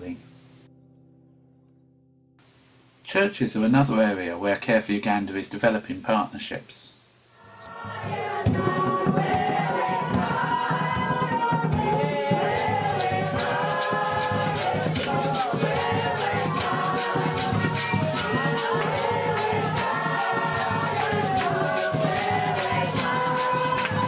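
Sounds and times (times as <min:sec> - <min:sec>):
congregation singing: 0:07.4 - 0:24.0
shaker beat: 0:07.4 - 0:24.0.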